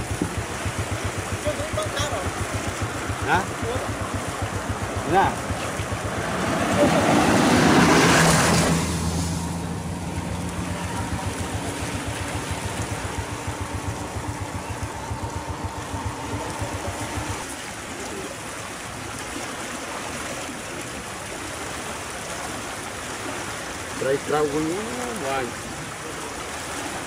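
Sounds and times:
small engine throbbing: 0.0 - 18.4
floodwater rushing: 0.0 - 27.0.

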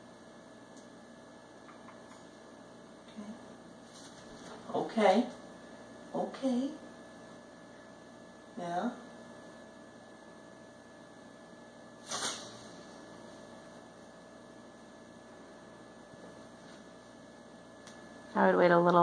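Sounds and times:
low electrical hum: 0.0 - 19.0
brief hiss: 12.0 - 12.6.

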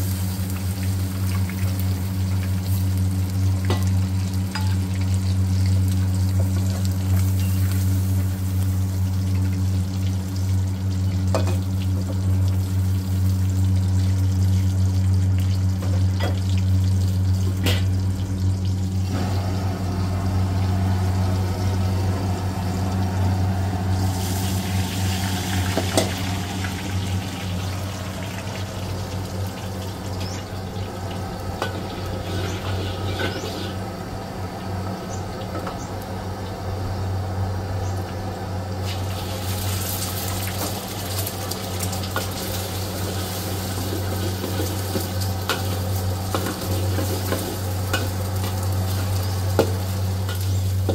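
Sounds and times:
water sizzling in a hot wok: 0.0 - 37.4, 38.0 - 50.9
steady low hum: 0.0 - 50.9.

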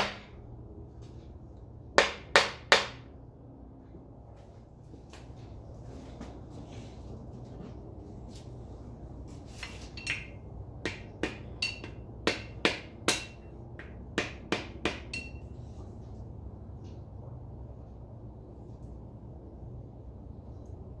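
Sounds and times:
hammer tapping metal: 2.0 - 3.1, 10.0 - 15.5.

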